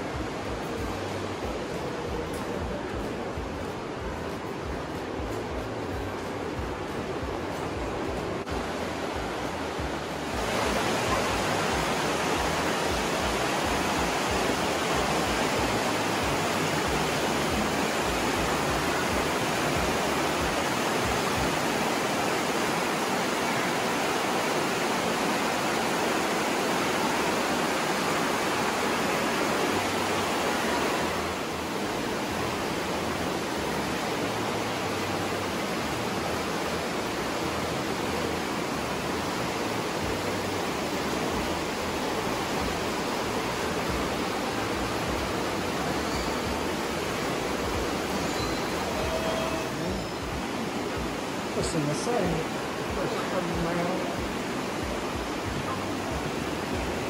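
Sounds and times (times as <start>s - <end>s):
river rushing through gorge: 0.0s - 57.0s.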